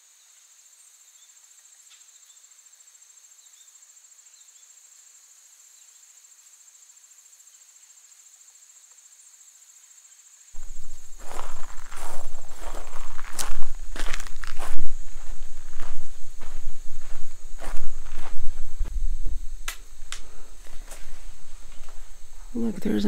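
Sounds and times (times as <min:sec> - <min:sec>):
short insect chirps: 0:00.0 - 0:23.0
high-pitched insect trilling: 0:00.6 - 0:23.0
footsteps crunching on dirt: 0:10.6 - 0:23.0.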